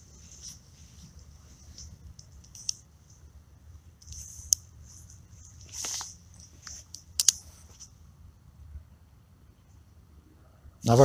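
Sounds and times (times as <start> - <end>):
light rustling: 0.0 - 8.0.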